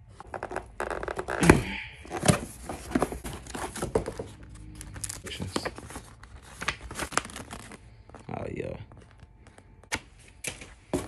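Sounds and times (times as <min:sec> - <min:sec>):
cardboard and paper rustling: 0:02.0 - 0:11.0.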